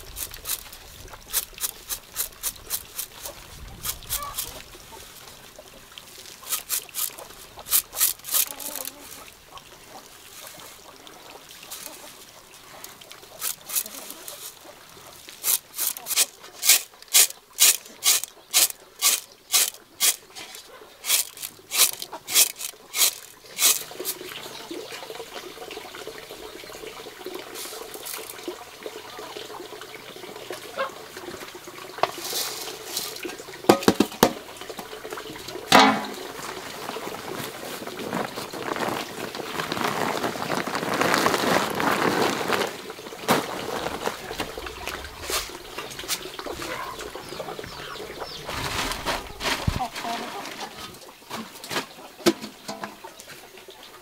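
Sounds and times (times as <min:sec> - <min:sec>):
rice grain scraping and rustling: 0:00.0 - 0:04.7, 0:06.2 - 0:09.2, 0:13.3 - 0:14.7, 0:15.3 - 0:24.4, 0:27.6 - 0:28.4, 0:32.1 - 0:33.3, 0:36.0 - 0:47.0, 0:48.3 - 0:50.7
water trickling from spout: 0:00.0 - 0:41.0, 0:42.8 - 0:48.5
grain pouring into plastic sack: 0:06.4 - 0:09.2, 0:13.3 - 0:14.6, 0:15.3 - 0:24.4, 0:27.6 - 0:28.4, 0:32.1 - 0:33.2, 0:36.2 - 0:45.8.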